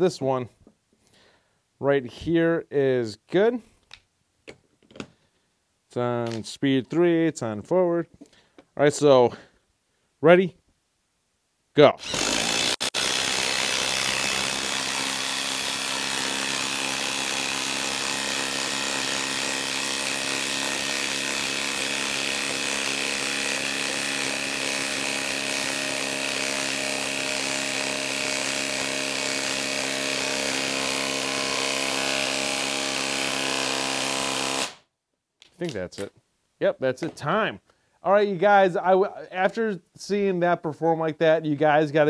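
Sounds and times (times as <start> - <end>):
impact wrench hammering: 12.0 - 34.8.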